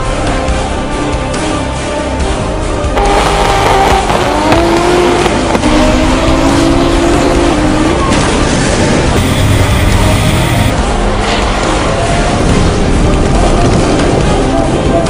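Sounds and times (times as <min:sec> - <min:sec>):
car engines revving high: 0:03.0 - 0:10.7.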